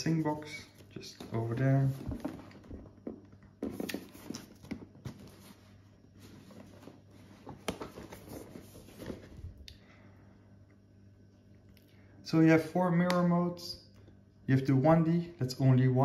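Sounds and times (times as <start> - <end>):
cardboard box being handled: 1.2 - 9.4.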